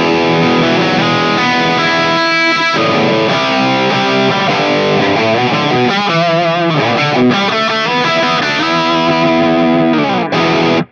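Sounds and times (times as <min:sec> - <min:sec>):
electric guitar riff: 0:00.0 - 0:10.9.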